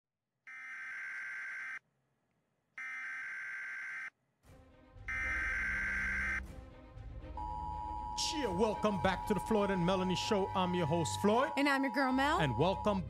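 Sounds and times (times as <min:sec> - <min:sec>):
low intro music: 0:04.5 - 0:11.6
electronic phone ringing tone: 0:05.1 - 0:06.4, 0:07.4 - 0:13.0.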